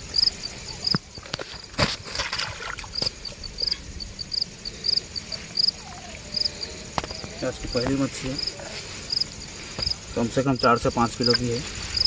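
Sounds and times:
cricket chirping: 0.0s - 12.0s
fish splashing in water: 1.2s - 3.4s.

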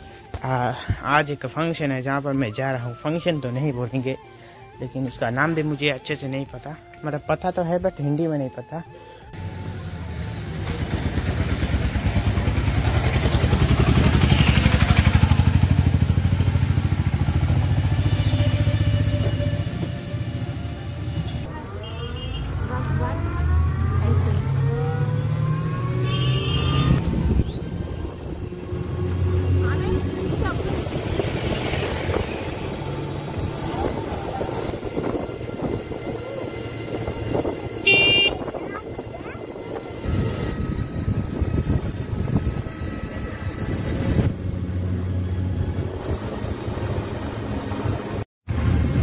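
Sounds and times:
road rumble: 8.9s - 49.0s
wind buffeting microphone: 27.0s - 44.7s.

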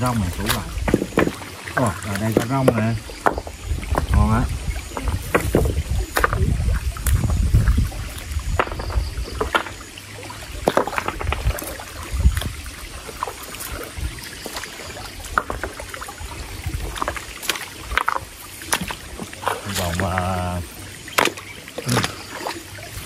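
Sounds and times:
stone knocking on stone: 2.6s - 4.2s, 8.6s - 9.8s, 10.6s - 11.6s.

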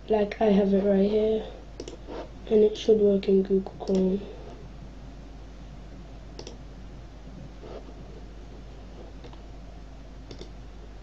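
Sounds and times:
low electrical hum and hiss: 0.0s - 11.0s
computer mouse clicking: 1.8s - 2.0s, 3.8s - 4.1s, 6.4s - 6.6s, 9.2s - 9.4s, 10.3s - 10.6s.

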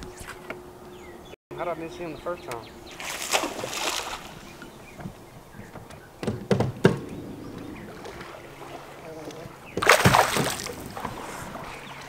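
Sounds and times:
knocks and thuds on boat deck: 4.8s - 8.4s, 9.3s - 11.3s.

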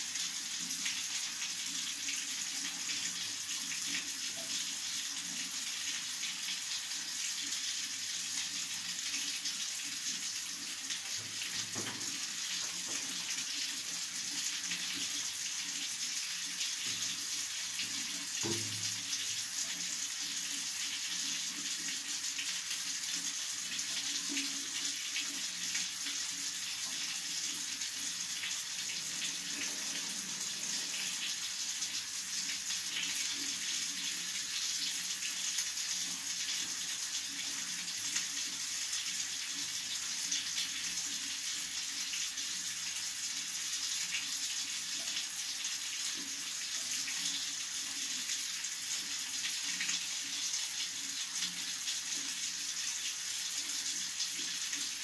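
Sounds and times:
tap water splashing into basin: 11.0s - 14.0s, 17.8s - 19.8s.

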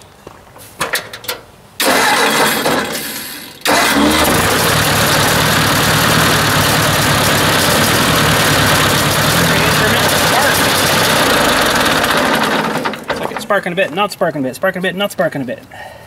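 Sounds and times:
tractor engine cranking: 0.8s - 13.9s
tractor engine running rough: 1.8s - 13.6s.

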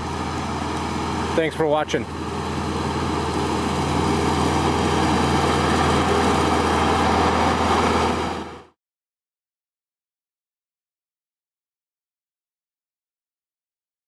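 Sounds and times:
diesel tractor running under load: 0.0s - 8.8s.

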